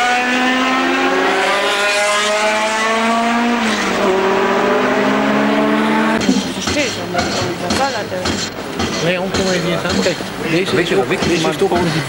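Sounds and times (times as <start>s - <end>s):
racing car engines accelerating: 0.0s - 6.6s.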